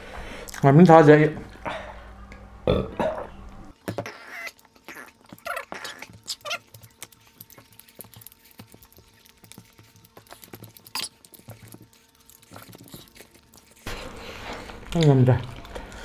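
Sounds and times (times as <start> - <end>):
faint steady hum: 0.0 - 16.0
chewing and lip-smacking: 3.7 - 16.0.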